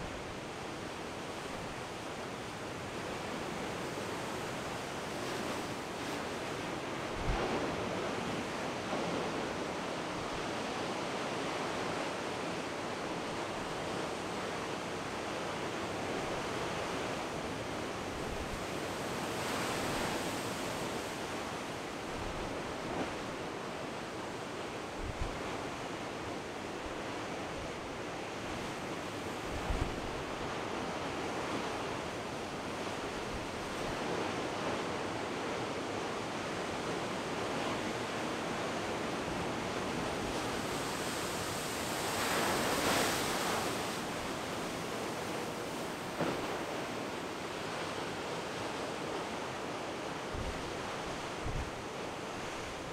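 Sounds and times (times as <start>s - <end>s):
wind buffeting microphone: 50.3s - 52.9s.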